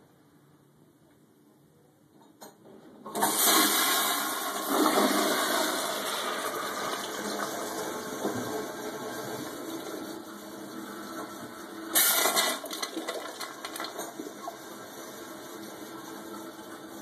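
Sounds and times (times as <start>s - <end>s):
toilet flush click: 3.1s - 10.0s, 11.1s - 14.6s
toilet flushing water rushing: 3.1s - 17.0s.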